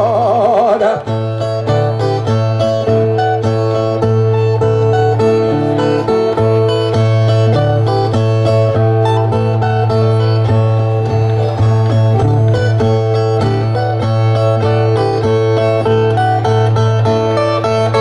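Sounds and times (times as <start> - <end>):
plucked strumming of violas: 0.0 - 18.0.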